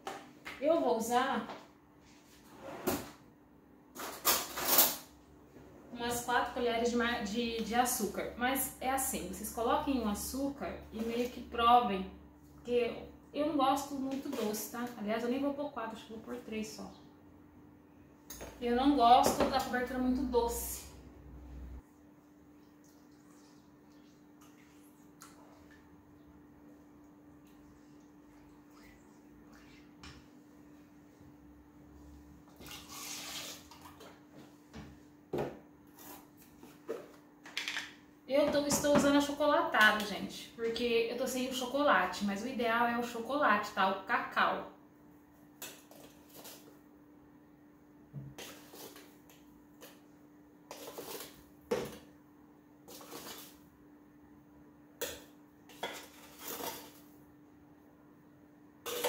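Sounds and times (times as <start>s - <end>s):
metal spoon scraping tin: 55.7s - 57.0s.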